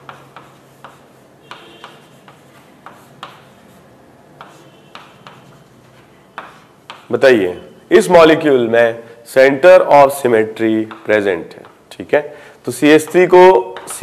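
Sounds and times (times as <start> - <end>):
pen tapping and clicking: 0.0 - 3.5, 4.4 - 5.6, 6.4 - 7.1, 10.8 - 11.8
faint pen scratches: 0.0 - 7.1.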